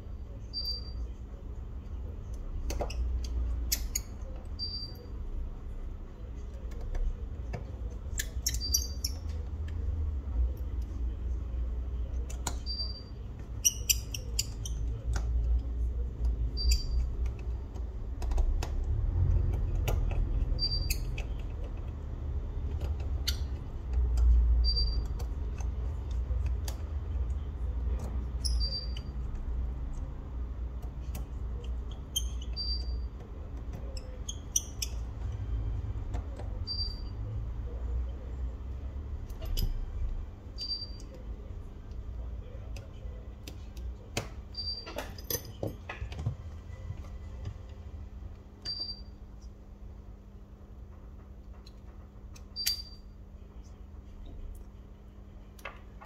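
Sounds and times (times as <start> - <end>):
tools clicking and tapping: 12.1 - 28.8, 39.2 - 39.9, 42.6 - 46.4.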